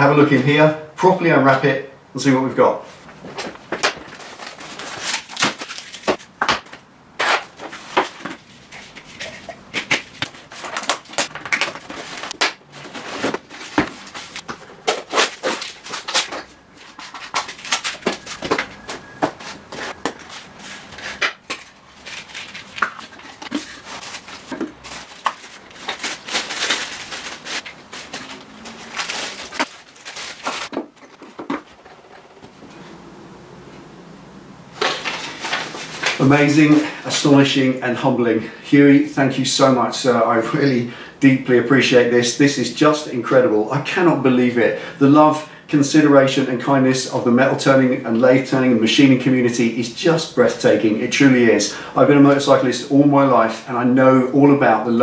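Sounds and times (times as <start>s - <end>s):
paper and tape tearing: 8.6s - 18.6s, 19.8s - 30.8s.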